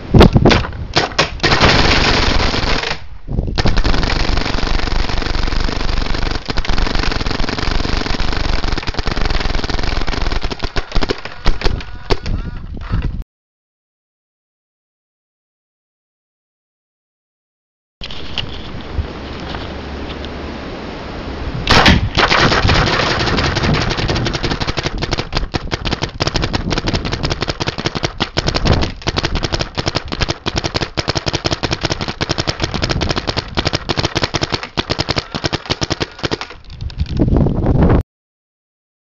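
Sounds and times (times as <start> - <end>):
paintball marker firing: 3.6 - 12.3, 21.7 - 36.7.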